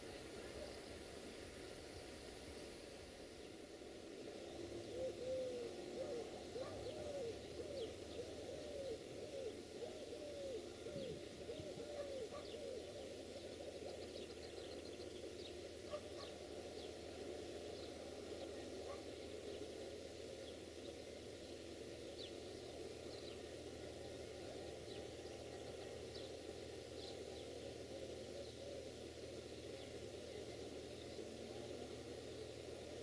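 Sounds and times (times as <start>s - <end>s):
soft hooting calls: 4.6s - 14.5s.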